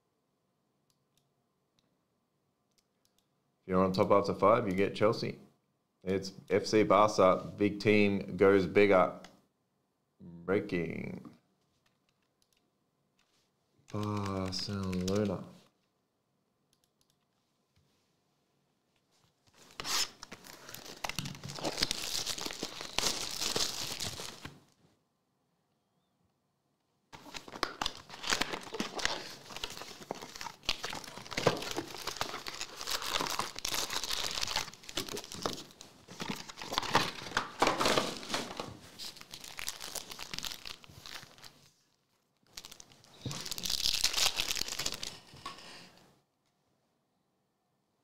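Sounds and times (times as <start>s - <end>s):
foil pack crinkling: 19.6s - 24.6s, 27.2s - 41.7s, 42.5s - 45.4s.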